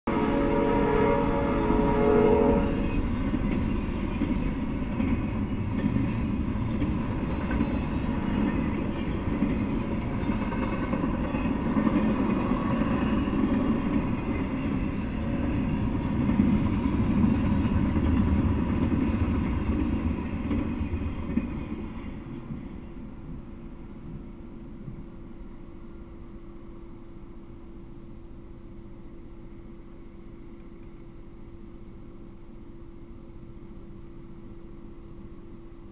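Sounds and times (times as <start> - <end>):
train wheels rumbling on rails: 0.1 - 25.6.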